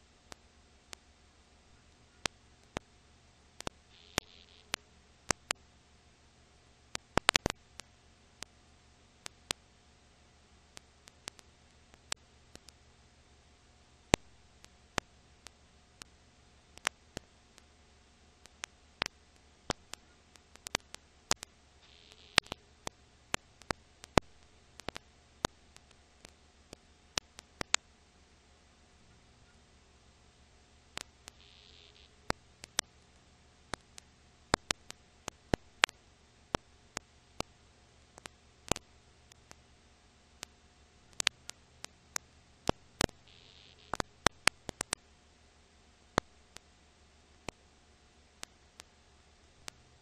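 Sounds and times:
faint steady hiss: 0.0 - 50.0
thin hum: 0.0 - 50.0
record clicks and pops: 1.9 - 2.9, 3.6 - 5.6, 6.9 - 8.6, 9.2 - 9.6, 10.7 - 12.8, 14.1 - 17.7, 18.4 - 27.9, 30.9 - 39.6, 40.4 - 45.0, 46.1 - 46.7, 47.4 - 47.6, 48.4 - 50.0.

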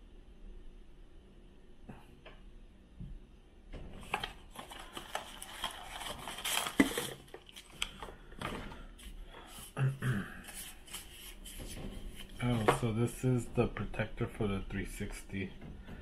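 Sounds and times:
packaging rustling: 4.0 - 8.2.

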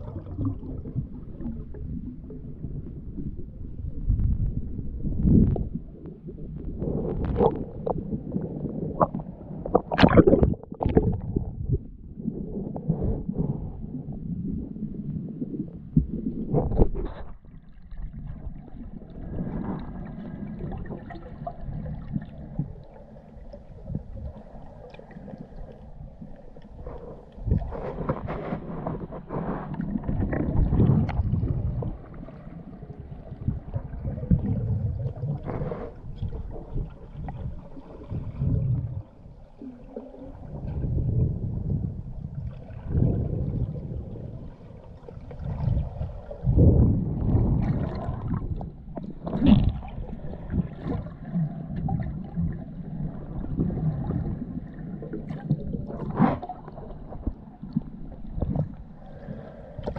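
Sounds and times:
burst of bubbles: 0.0 - 1.9, 9.0 - 11.8, 42.4 - 56.8
muffled underwater rushing: 0.0 - 59.9.

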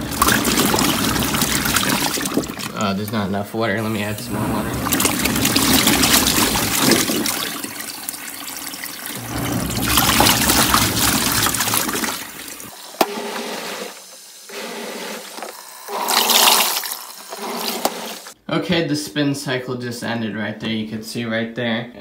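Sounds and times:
water pouring and splashing: 0.0 - 3.2, 3.8 - 14.2, 15.3 - 18.4
washing machine agitator churning: 0.0 - 18.4
low motor hum: 3.8 - 7.9, 9.1 - 12.7.

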